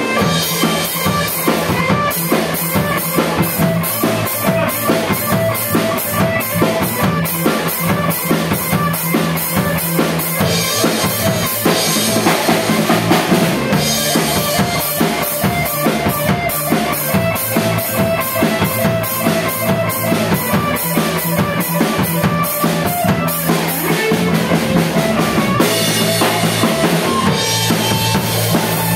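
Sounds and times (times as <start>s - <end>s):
drum kit beat: 0.0s - 28.9s
electric bass line: 0.0s - 28.9s
electric guitar: 0.0s - 28.9s.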